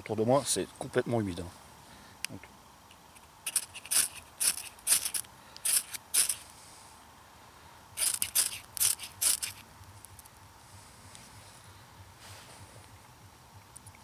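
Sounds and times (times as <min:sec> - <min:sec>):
knife scraping fire steel: 0:03.5 - 0:06.4, 0:08.0 - 0:09.6.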